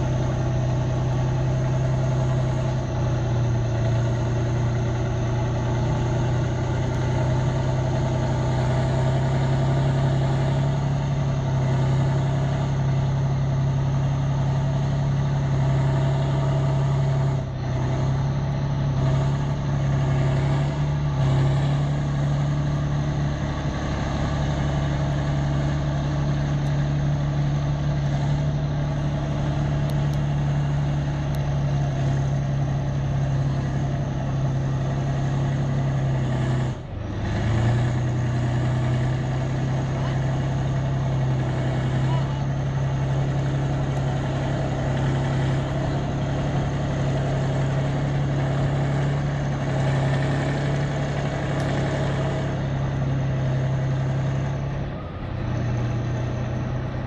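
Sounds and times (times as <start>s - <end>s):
heavy diesel engine droning: 0.0s - 57.0s.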